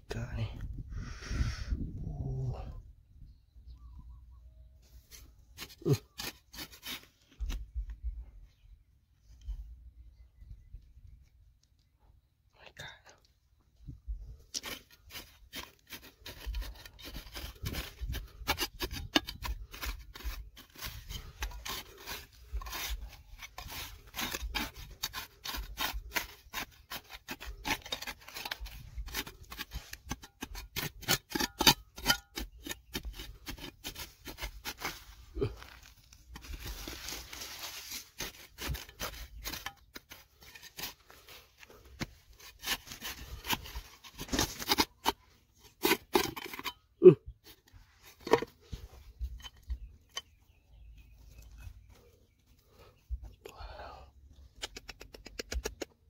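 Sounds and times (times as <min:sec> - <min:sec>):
hand tool scraping stone: 0:05.1 - 0:07.6, 0:14.5 - 0:52.9.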